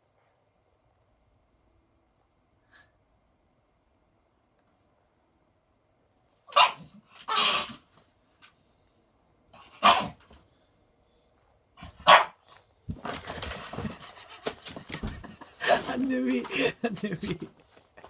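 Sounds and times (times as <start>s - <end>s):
dog barking: 6.5s - 7.5s, 9.8s - 10.2s, 12.0s - 12.4s
scraping and rustling: 12.9s - 16.1s.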